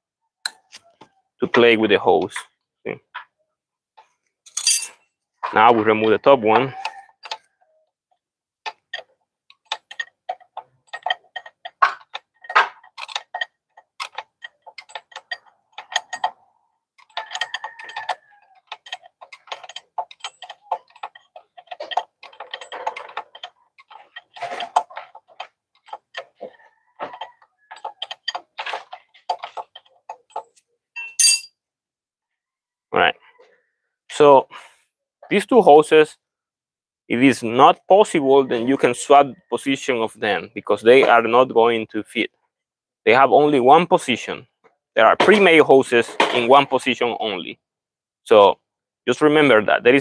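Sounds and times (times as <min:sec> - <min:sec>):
sharp metallic clink with ring: 0:31.0 - 0:31.5.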